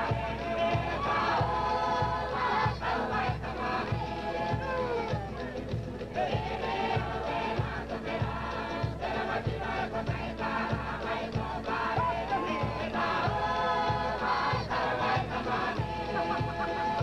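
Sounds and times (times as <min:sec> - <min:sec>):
group singing in chorus: 0:00.0 - 0:05.2, 0:05.9 - 0:17.0
steady drumbeat: 0:00.0 - 0:17.0.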